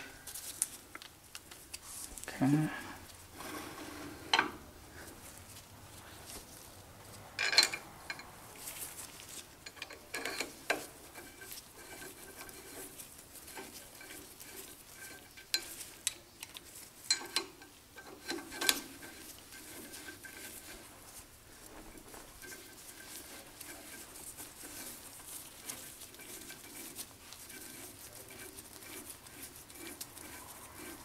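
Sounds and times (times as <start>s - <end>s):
metal tools clinking: 7.4s - 8.3s.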